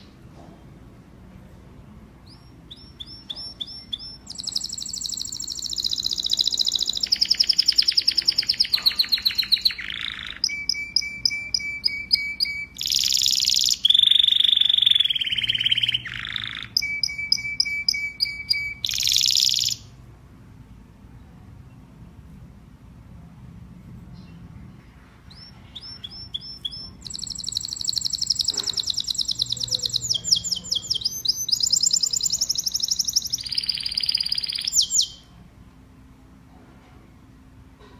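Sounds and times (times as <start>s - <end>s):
canary singing trills: 2.2s - 20.0s, 25.3s - 35.4s.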